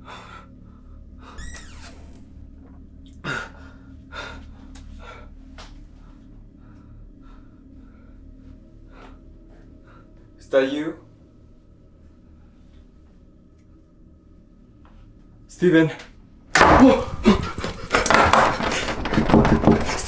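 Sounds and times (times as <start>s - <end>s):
low steady hum: 0.0s - 20.0s
man breathing hard and gasping: 3.2s - 10.4s.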